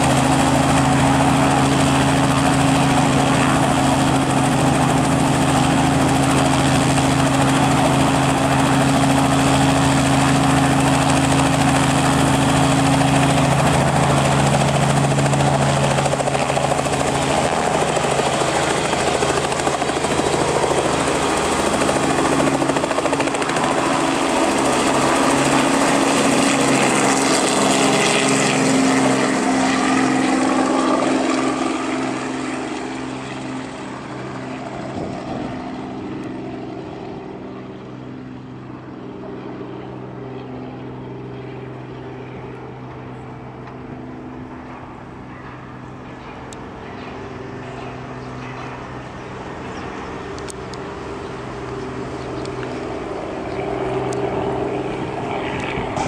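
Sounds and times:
helicopter rotor and engine: 0:00.0 - 0:56.0.

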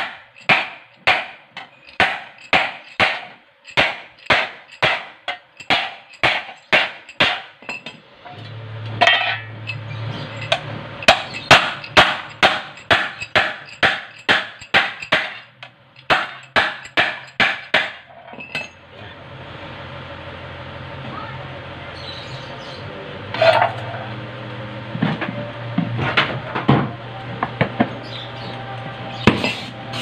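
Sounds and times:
hammer striking sheet metal: 0:00.0 - 0:01.4, 0:02.0 - 0:07.8, 0:10.4 - 0:18.1.

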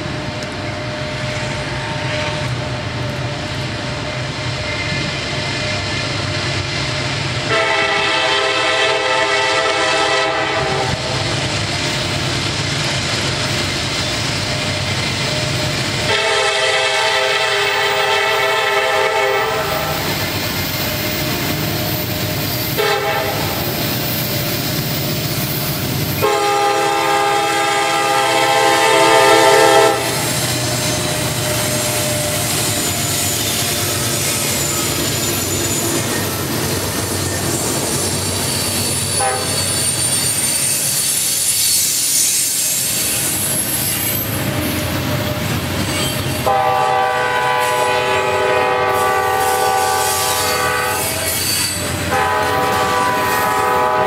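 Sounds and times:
diesel locomotive engine rumble: 0:00.0 - 0:54.0
train air horn blasts: 0:07.4 - 0:11.3, 0:16.0 - 0:20.5, 0:21.2 - 0:24.2, 0:26.0 - 0:30.6, 0:39.2 - 0:39.8, 0:46.4 - 0:54.0.

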